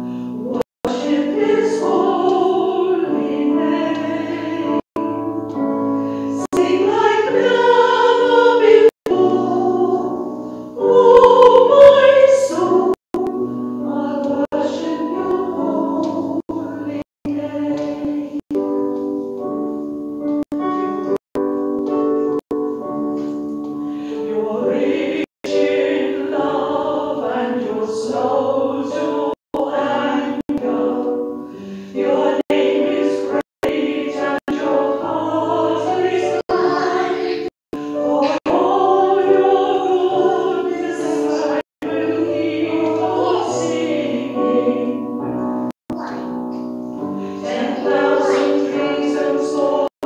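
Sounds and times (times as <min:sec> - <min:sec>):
choir singing a hymn: 0:00.4 - 0:05.4, 0:06.1 - 0:18.4, 0:24.0 - 0:45.4, 0:47.0 - 0:49.9.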